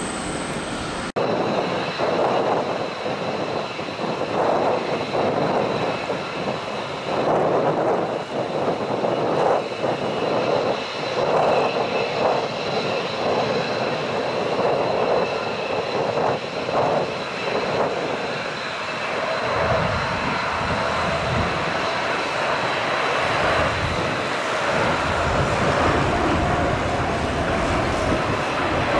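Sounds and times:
jet engine whine and rush: 0.0 - 28.9
deep rumble: 23.2 - 28.9.

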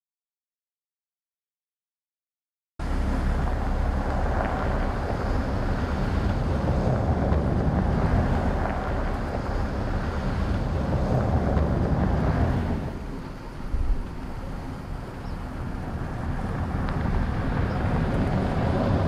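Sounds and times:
engine and tyres rumbling: 2.8 - 19.0
wind buffeting microphone: 2.8 - 19.0.

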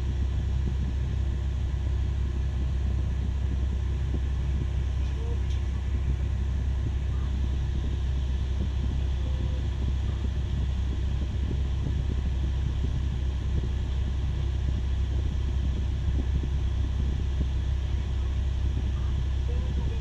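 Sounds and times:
heavy engine low rumble: 0.0 - 20.0.

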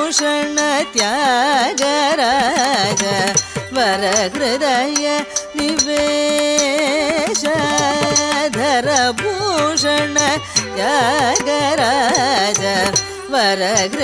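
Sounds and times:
sharp percussion strokes: 2.7 - 13.9.

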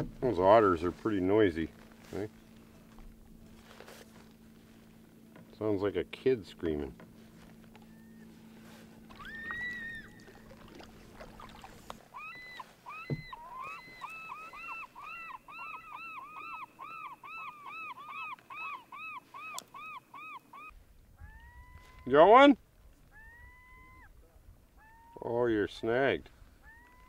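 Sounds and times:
otters squealing calls: 9.1 - 22.2, 23.1 - 24.1, 26.6 - 27.0.

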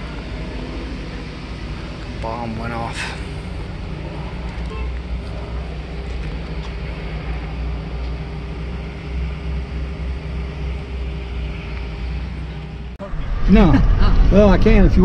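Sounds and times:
engine running: 0.0 - 15.0
faint steady hum: 0.0 - 15.0.

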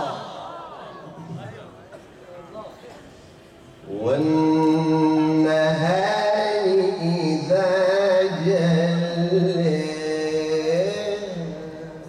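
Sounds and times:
man reciting melodically: 3.8 - 12.0.

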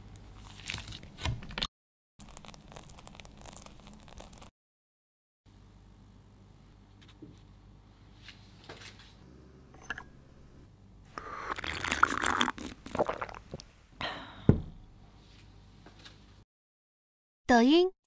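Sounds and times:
person slurping from a mug: 11.1 - 13.6.

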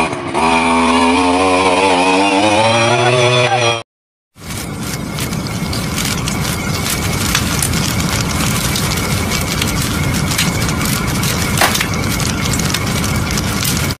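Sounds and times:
fire crackling and popping: 4.4 - 14.0
low rumble: 4.4 - 14.0
sharp crack of fire: 4.4 - 14.0.

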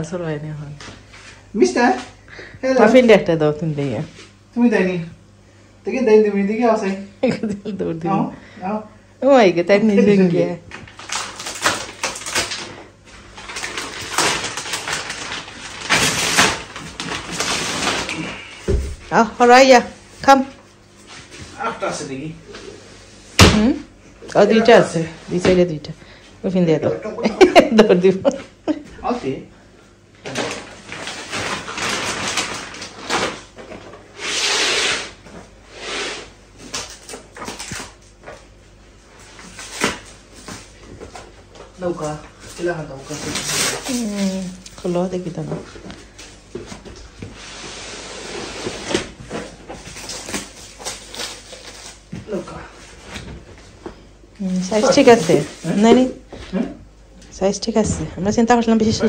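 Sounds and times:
plastic packaging rustling: 10.7 - 18.6, 30.2 - 34.1, 41.7 - 46.8, 48.6 - 52.5, 54.5 - 56.2
plastic wrapping crinkling: 10.7 - 18.6, 30.3 - 33.8, 41.8 - 45.3, 48.6 - 52.4, 54.5 - 56.2.

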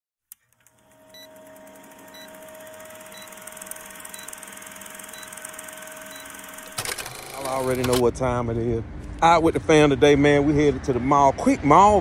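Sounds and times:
film projector clatter and hiss: 1.4 - 8.1
short high beeps: 2.1 - 2.4, 3.1 - 3.4, 4.1 - 4.4, 5.1 - 7.5.

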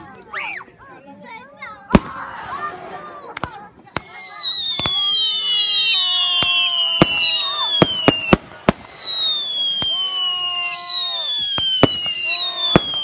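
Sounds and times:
firework cracks: 1.9 - 13.0
firework whistles falling in pitch: 3.9 - 13.0.

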